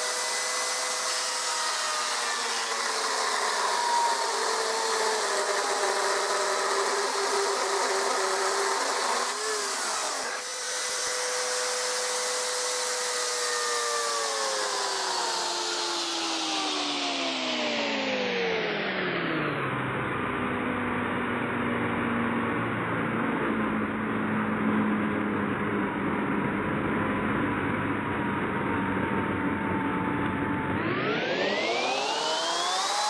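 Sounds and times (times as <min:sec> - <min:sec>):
chainsaw cutting wood: 0:00.0 - 0:19.4, 0:30.6 - 0:33.0.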